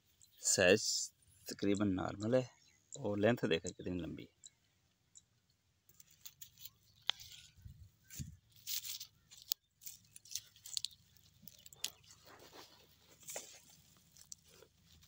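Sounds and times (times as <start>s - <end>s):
crunching and rustling of soil: 5.9s - 15.0s.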